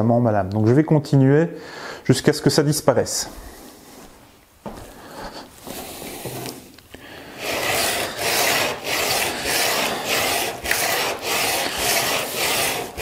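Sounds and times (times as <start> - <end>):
chisel rubbing on sandpaper: 5.6 - 6.7, 7.3 - 13.0.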